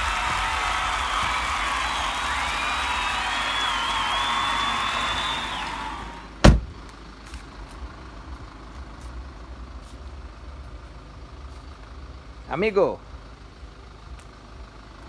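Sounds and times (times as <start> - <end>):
low steady rumble: 0.0 - 15.0
car door slamming: 6.4 - 6.8.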